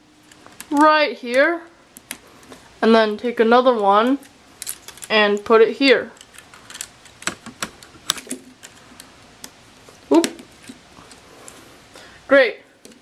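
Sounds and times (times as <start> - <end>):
plastic pieces clicking and snapping: 4.1 - 5.5, 6.2 - 11.2.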